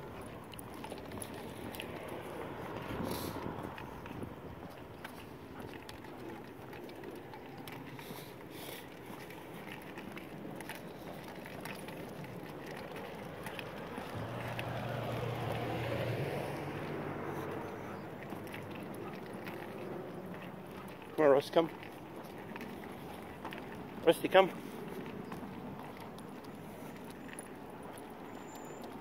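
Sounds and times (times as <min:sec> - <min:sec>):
vehicle driving past: 0:13.5 - 0:20.4.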